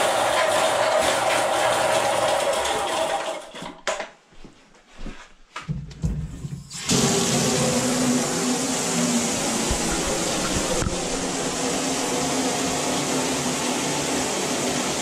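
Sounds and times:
water running from faucet: 0.0 - 3.4, 6.7 - 15.0
drain cleaning machine motor hum: 0.0 - 3.6, 6.7 - 15.0.

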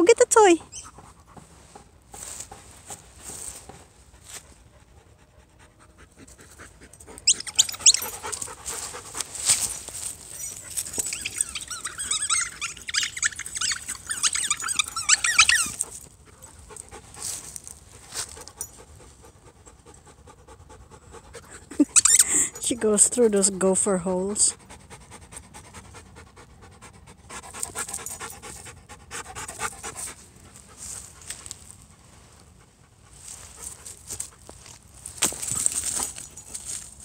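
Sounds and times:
dogs panting: 0.5 - 23.4, 24.1 - 36.8
dog squealing and whining: 0.6 - 1.0, 7.1 - 8.6, 9.6 - 16.0, 21.7 - 22.6.

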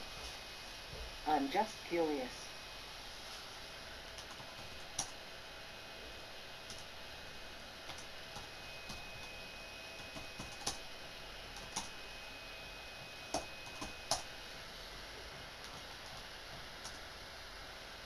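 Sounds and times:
steady low hiss: 0.0 - 9.3.

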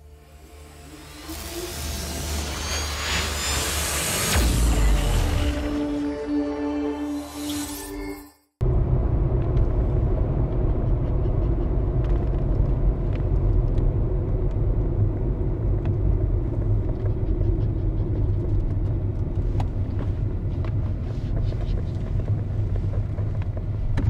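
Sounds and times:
car rumbling on the move: 8.6 - 24.0.

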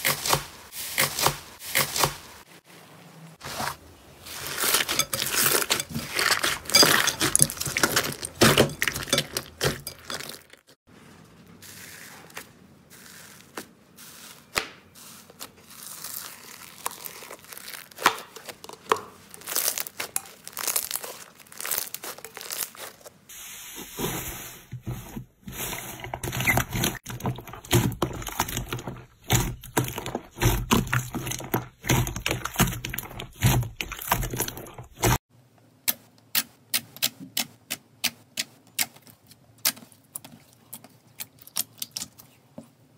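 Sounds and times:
slime popping and crackling: 15.7 - 23.0.

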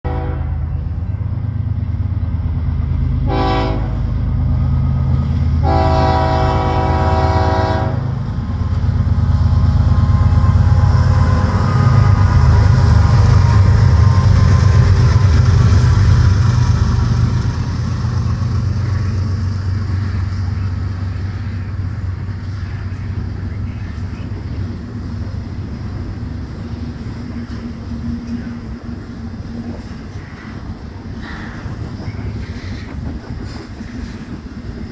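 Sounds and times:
train air horn blasts: 0.1 - 0.8, 3.3 - 4.1, 5.6 - 8.2.

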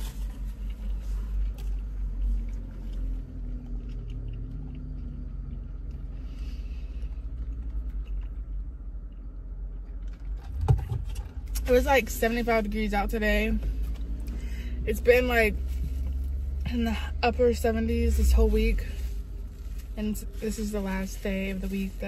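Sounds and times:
quiet chewing: 0.0 - 10.7.

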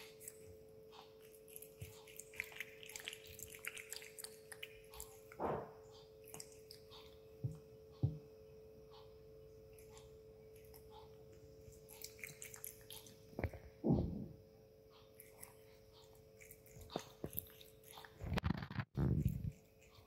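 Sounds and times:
steady hum: 0.0 - 20.0
cat lapping water: 1.3 - 5.4, 11.7 - 13.5.

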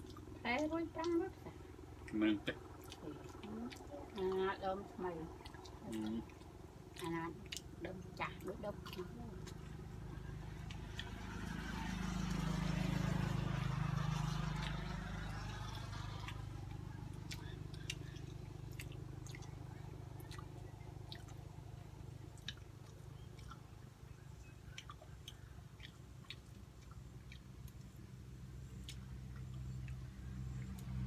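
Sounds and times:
low hum: 0.0 - 31.0
people chewing with wet mouth sounds: 0.0 - 31.0
lip-smacking clicks: 5.4 - 12.0, 13.5 - 23.8, 24.6 - 31.0.

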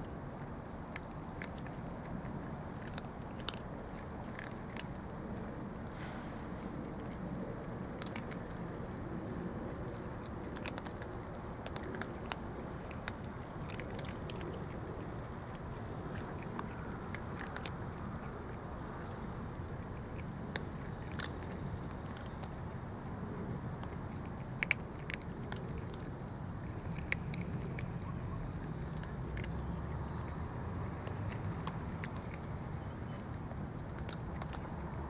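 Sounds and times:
low background rumble: 0.0 - 35.0
cats crunching dry kibble: 0.8 - 6.0, 6.6 - 35.0.

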